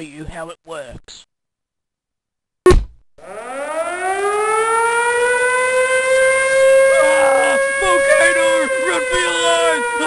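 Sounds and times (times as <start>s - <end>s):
short thump: 2.6s - 3.0s
warning siren wailing: 3.2s - 10.0s.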